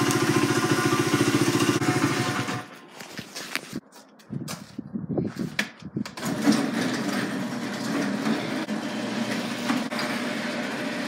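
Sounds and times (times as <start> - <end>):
garage door opener rumbling: 0.0 - 2.7, 6.1 - 11.0.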